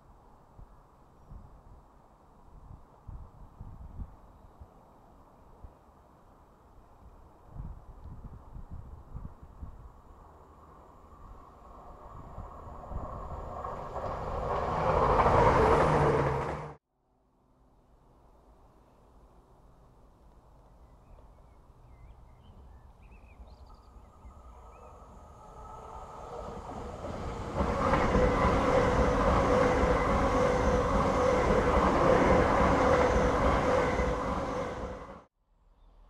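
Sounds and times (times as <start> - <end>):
trains passing at speed: 10.0 - 16.8, 23.6 - 35.3
train whine: 10.2 - 16.8, 23.7 - 35.3.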